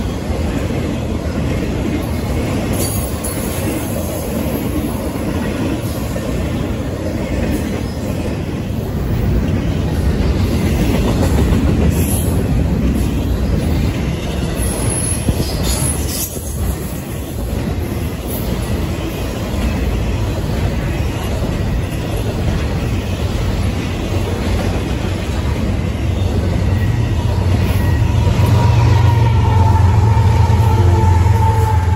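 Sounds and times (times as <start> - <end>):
train wheels rumbling on rails: 0.0 - 31.9
high-pitched wheel squeals: 25.8 - 31.9.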